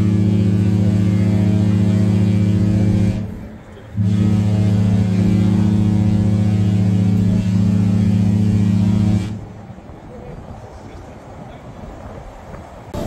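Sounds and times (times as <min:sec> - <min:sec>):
ship horn blasts: 0:00.0 - 0:09.6.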